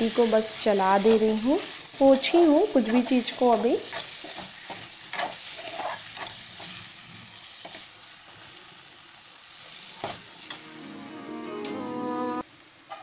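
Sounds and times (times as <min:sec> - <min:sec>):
food sizzling in a pan: 0:00.0 - 0:11.7, 0:12.4 - 0:13.0
metal spoon scraping a pan: 0:02.8 - 0:06.8.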